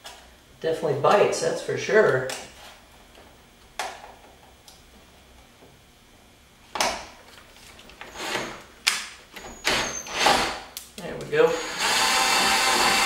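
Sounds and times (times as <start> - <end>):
cordless drill cutting: 8.0 - 8.6, 9.7 - 10.6, 11.5 - 13.0.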